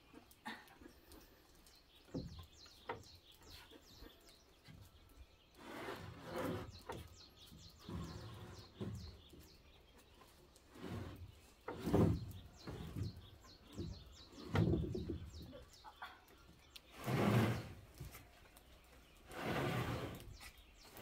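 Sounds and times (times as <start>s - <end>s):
birds chirping: 0.0s - 21.0s
boards scraping: 5.5s - 9.5s, 10.2s - 15.4s, 16.9s - 18.3s, 19.2s - 21.0s
wooden planks knocking: 11.6s - 15.5s.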